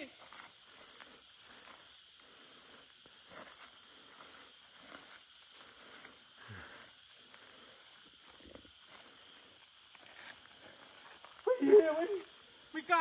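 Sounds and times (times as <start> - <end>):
high insect hiss: 0.0 - 13.0
insects chirping in pulses: 0.0 - 13.0
footsteps through tall grass: 3.1 - 11.6.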